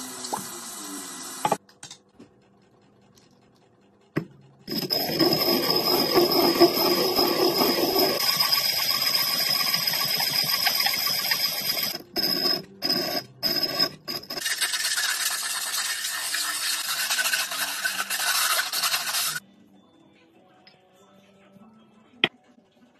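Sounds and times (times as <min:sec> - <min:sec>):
glass grinding on abrasive mat: 0:04.7 - 0:19.4
sandpaper scratching glass: 0:14.4 - 0:19.4.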